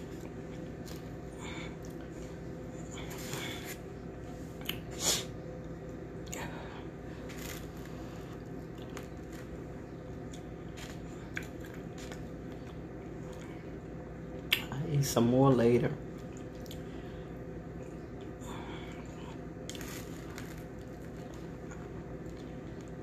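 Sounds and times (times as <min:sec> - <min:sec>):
steady low hum: 0:00.0 - 0:23.0
person chewing: 0:04.5 - 0:06.6, 0:07.2 - 0:09.6, 0:10.2 - 0:13.8, 0:16.2 - 0:16.9, 0:17.7 - 0:23.0.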